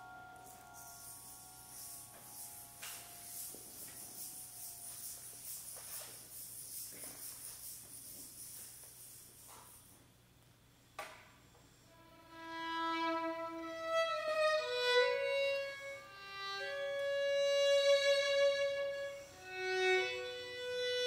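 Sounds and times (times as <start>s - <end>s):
violin playing slow melody: 0.0s - 5.6s, 11.9s - 21.0s.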